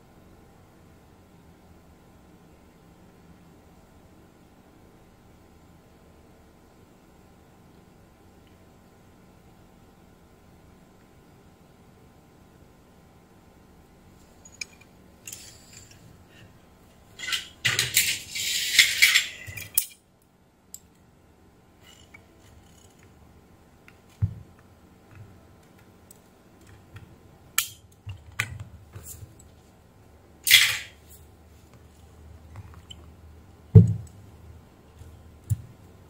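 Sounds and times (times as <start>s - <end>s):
metal parts clattering: 14.4s - 16.0s, 17.2s - 20.0s, 30.5s - 31.0s
metal parts clinking and scraping: 14.4s - 16.0s, 17.2s - 20.0s, 21.8s - 23.0s, 30.5s - 31.0s.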